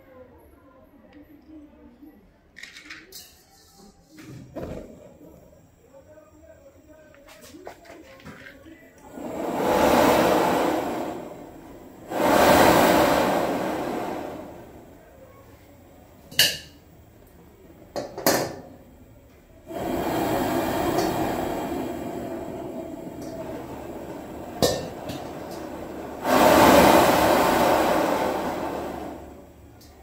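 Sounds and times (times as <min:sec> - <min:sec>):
gas wok burner roaring: 0:09.0 - 0:15.1, 0:19.6 - 0:30.0.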